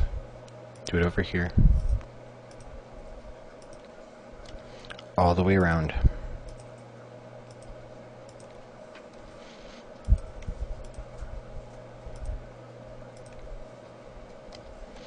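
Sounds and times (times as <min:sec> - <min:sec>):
steady low hum: 0:00.0 - 0:15.0
microphone thumps and rumble: 0:01.5 - 0:02.0.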